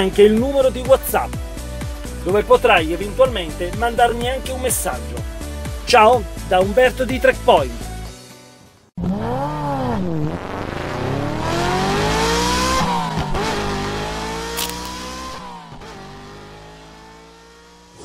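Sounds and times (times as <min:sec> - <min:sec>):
engine accelerating through gears: 0:09.0 - 0:18.0.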